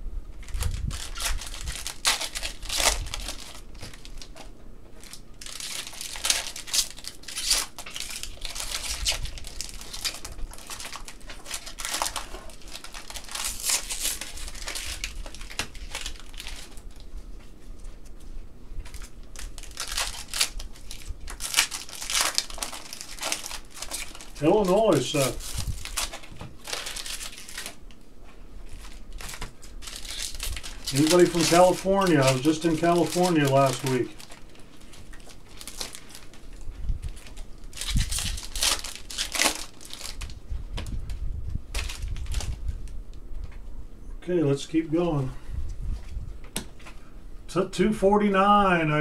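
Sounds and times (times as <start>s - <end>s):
card pack wrappers crinkling: 0.4s - 17.2s, 18.8s - 28.0s, 28.6s - 41.0s, 41.7s - 43.0s
cards being handled: 28.7s - 36.5s.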